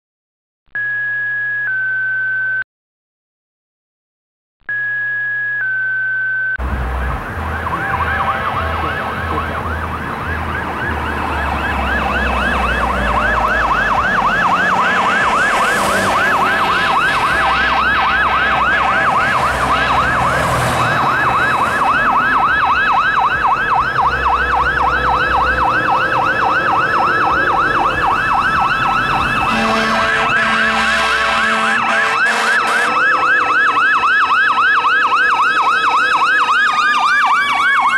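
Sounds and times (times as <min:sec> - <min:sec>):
electronic siren yelping: 0:04.7 - 0:37.9
low pulsing tones: 0:06.6 - 0:29.5
truck engine rumble: 0:06.6 - 0:37.9.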